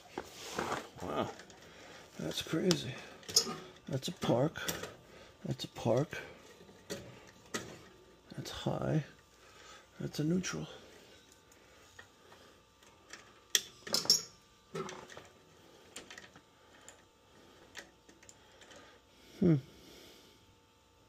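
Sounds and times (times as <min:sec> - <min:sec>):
person humming: 0:19.3 - 0:19.8.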